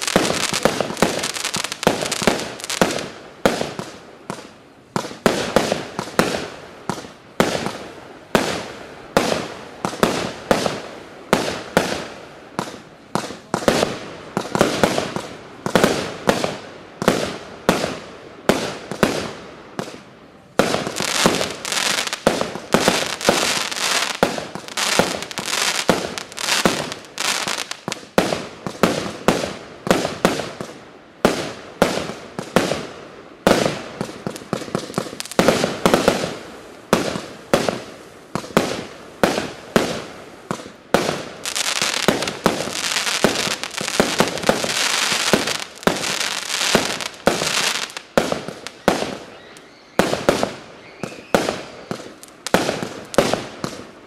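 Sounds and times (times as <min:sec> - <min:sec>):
firework shots: 0:00.0 - 0:49.4, 0:50.0 - 0:53.9
crackling firework stars: 0:00.0 - 0:54.0.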